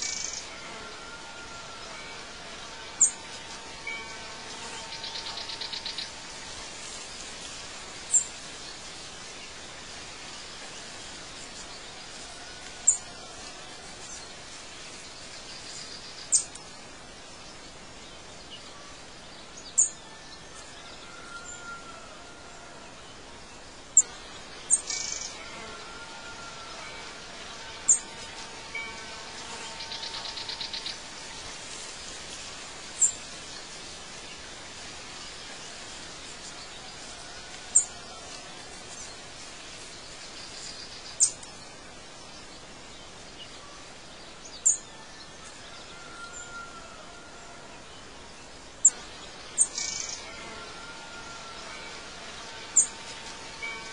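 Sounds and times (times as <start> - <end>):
steady hiss: 0.0 - 53.9
buzzing bird trill: 24.0 - 31.3.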